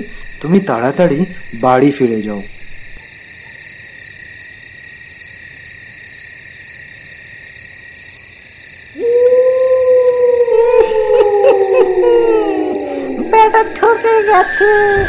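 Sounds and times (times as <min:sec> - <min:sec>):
crickets chirping: 0:00.0 - 0:15.0
loud long animal call: 0:09.0 - 0:15.0.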